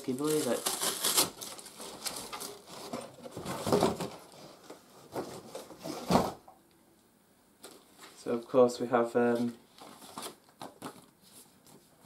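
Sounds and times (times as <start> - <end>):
cardboard and plastic rustling: 0.0 - 6.5, 9.2 - 12.0.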